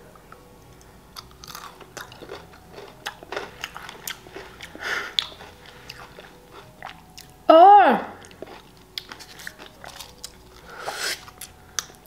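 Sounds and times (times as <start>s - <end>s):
chewing crunches: 1.2s - 7.4s, 8.2s - 12.0s.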